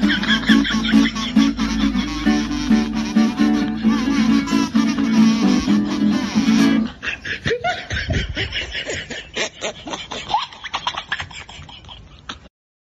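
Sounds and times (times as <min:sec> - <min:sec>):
snickering laughter: 0:00.0 - 0:04.4, 0:05.0 - 0:12.5
music: 0:00.0 - 0:06.9.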